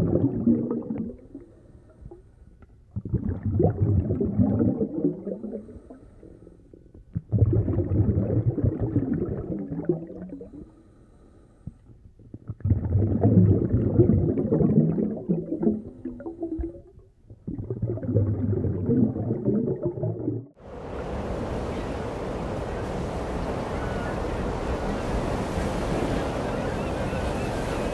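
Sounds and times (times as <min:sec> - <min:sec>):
deep submarine rumble: 0:12.1 - 0:21.2
ocean surf washing: 0:20.6 - 0:27.9.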